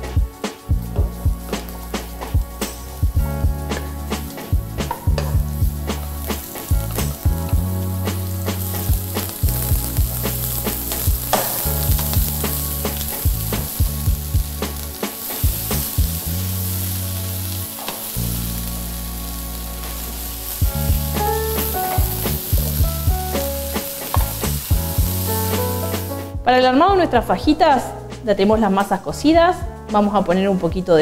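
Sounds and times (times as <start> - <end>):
vegetables sizzling in oil: 3.8 - 26.1.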